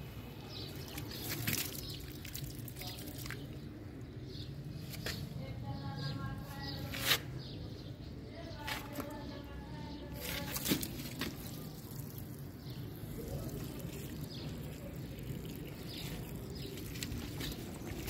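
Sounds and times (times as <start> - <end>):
water pouring and splashing: 0.6 - 3.7, 10.1 - 18.0.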